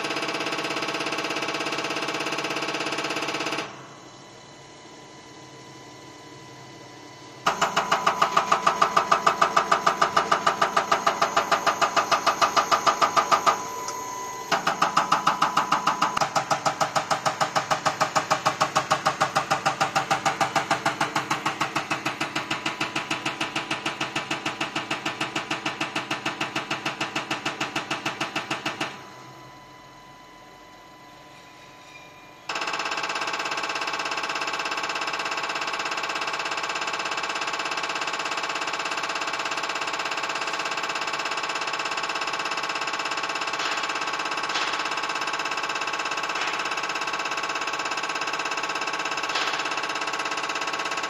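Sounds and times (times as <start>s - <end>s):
diesel injector rapid clicking: 7.5s - 29.0s.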